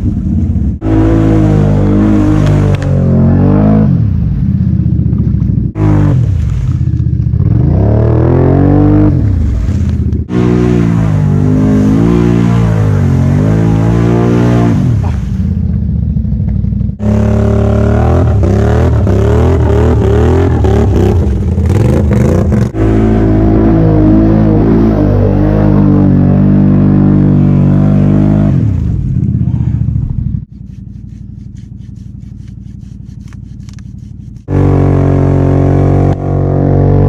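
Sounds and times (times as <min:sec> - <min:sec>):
quads churning through mud: 0:00.0 - 0:15.9, 0:17.0 - 0:37.0
engine revving hard: 0:00.8 - 0:04.1, 0:05.7 - 0:06.5, 0:07.4 - 0:09.4, 0:10.3 - 0:15.2, 0:17.0 - 0:28.9, 0:34.4 - 0:37.0.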